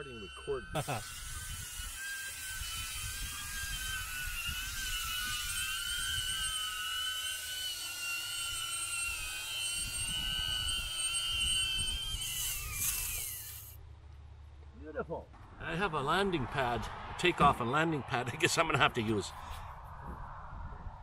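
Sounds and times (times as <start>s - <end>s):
drone propellers whining: 0.0s - 13.8s
low rumble: 15.3s - 21.0s.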